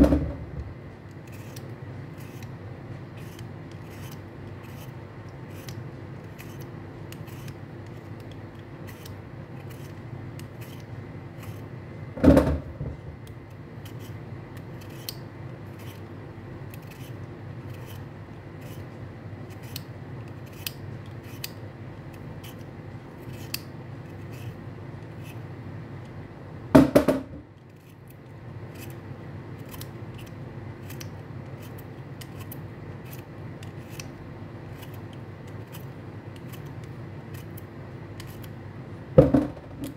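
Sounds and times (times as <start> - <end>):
knocks: 0.0 - 0.7, 12.2 - 13.1, 26.8 - 27.4, 39.2 - 39.9
peeler scraping beetroot: 1.1 - 11.7, 13.8 - 16.1, 16.7 - 21.6, 22.4 - 25.4, 29.6 - 38.5.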